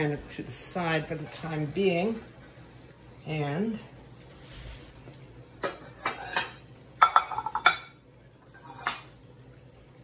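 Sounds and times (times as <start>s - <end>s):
dishes knocking and clinking: 5.6s - 8.0s, 8.6s - 9.2s.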